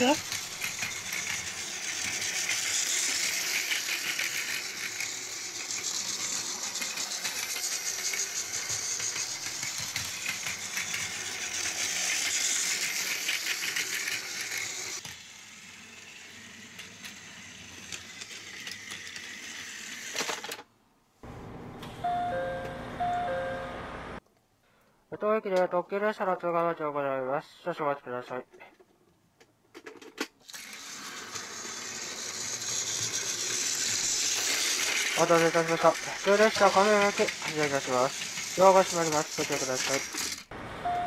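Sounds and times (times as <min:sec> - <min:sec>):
toy train clicking and rattling: 0:00.0 - 0:20.7, 0:29.7 - 0:40.5
short electronic tones: 0:22.0 - 0:23.9.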